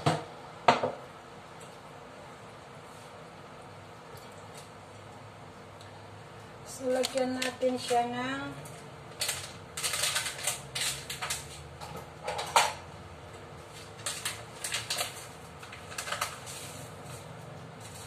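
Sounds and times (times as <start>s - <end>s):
kitchen items clicking and knocking: 9.2s - 12.9s.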